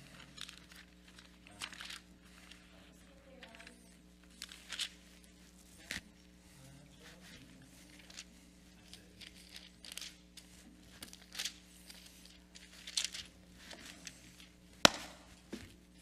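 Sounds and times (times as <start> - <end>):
paper rustling: 0.0 - 16.0
steady low hum: 0.0 - 16.0
sharp tap: 14.9 - 15.2.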